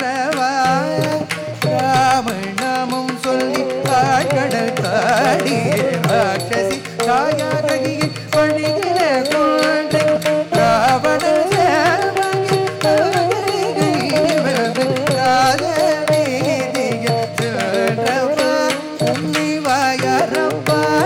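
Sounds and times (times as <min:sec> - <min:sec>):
ornamented melody: 0:00.0 - 0:21.0.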